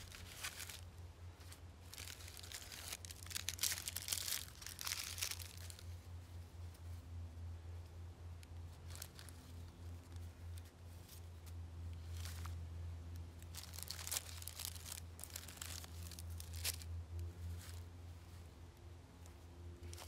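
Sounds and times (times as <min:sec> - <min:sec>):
cloth bag rustling: 0:00.0 - 0:05.9
steady low hum: 0:00.0 - 0:20.0.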